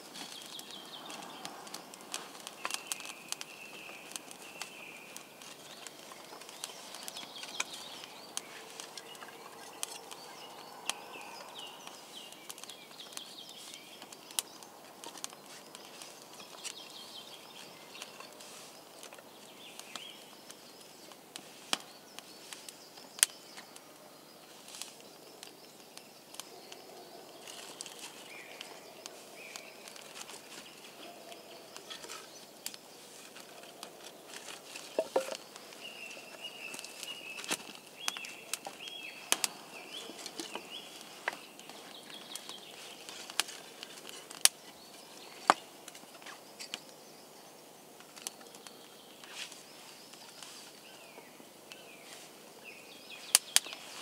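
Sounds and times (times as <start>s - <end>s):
campfire crackling and popping: 0.0s - 54.0s
faint birdsong: 0.0s - 54.0s
sticks knocking on fire: 34.9s - 35.4s.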